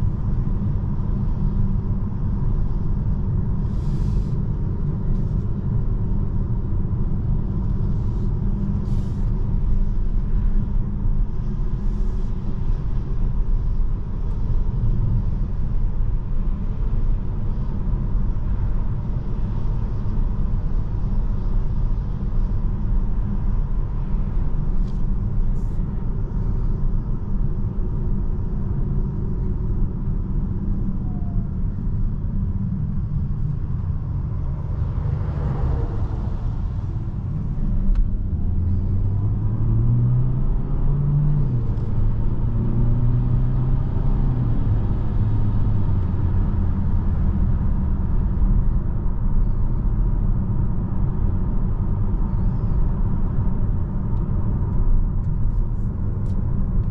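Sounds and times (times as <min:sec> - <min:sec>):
road and tyre rumble: 0:00.0 - 0:56.9
car engine accelerating: 0:33.4 - 0:48.6.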